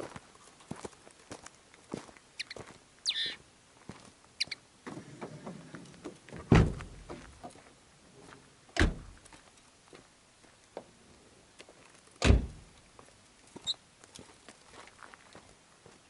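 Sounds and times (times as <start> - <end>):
finch calls: 2.4 - 3.4, 4.4 - 4.6
car doors shutting: 6.4 - 7.0, 8.8 - 9.1, 12.2 - 12.6.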